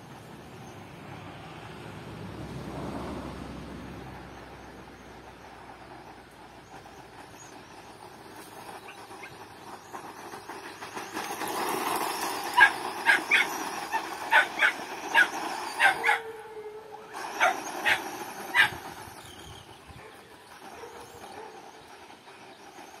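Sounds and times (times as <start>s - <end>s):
rc truck driving on dirt: 0.0s - 23.0s
dog barking: 14.3s - 16.4s, 17.4s - 18.8s.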